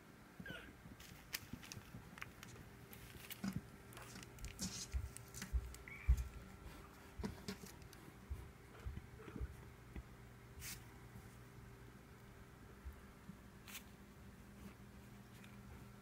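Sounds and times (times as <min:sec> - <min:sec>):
faint kitten squeak: 0:00.4 - 0:00.8, 0:05.8 - 0:06.2
kitten paws pattering: 0:00.9 - 0:10.0.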